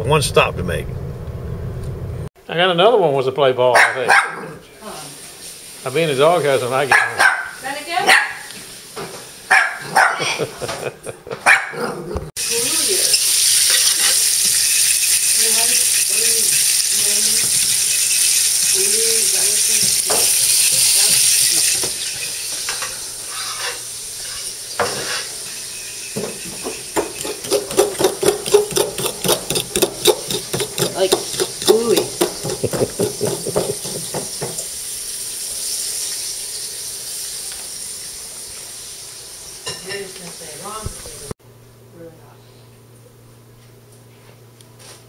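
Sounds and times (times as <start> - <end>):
fish sizzling in oil: 5.0 - 6.8, 12.4 - 41.2
spoon scraping a bowl: 26.3 - 34.4.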